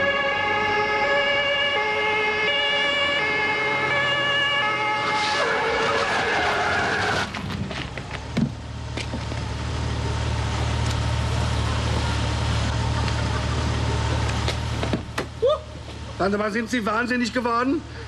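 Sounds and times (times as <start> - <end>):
police siren: 0.0 - 7.3
car engine idling: 7.9 - 18.0.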